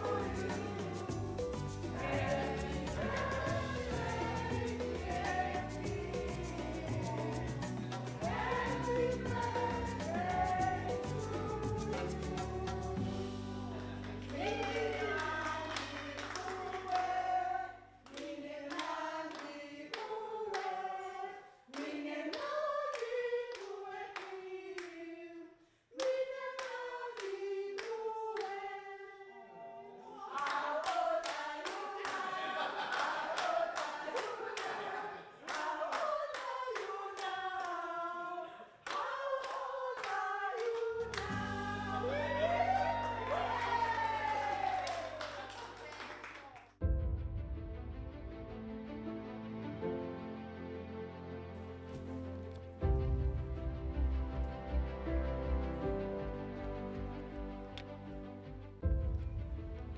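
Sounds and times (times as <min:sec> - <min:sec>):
group singing a cappella: 0:00.0 - 0:44.3
handclapping: 0:14.0 - 0:17.2, 0:18.1 - 0:20.7, 0:38.9 - 0:41.4, 0:43.0 - 0:46.7.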